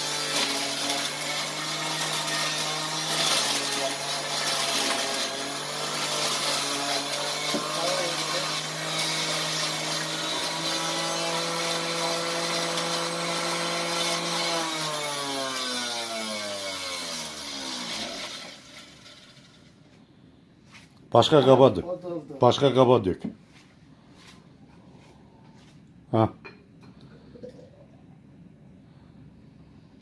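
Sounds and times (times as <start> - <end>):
motor winding down: 0.0 - 19.6
juicer motor humming: 0.0 - 19.8.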